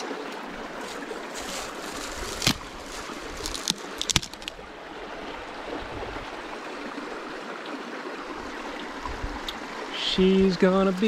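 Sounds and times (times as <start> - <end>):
creek rushing: 0.0 - 11.0
dry wood cracking and splintering: 0.9 - 4.6.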